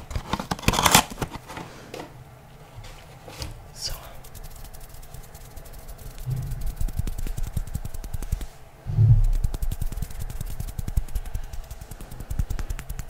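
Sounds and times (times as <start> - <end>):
hands rubbing on microphone: 3.9 - 13.0
low muffled thumps: 6.2 - 8.2, 8.8 - 10.2.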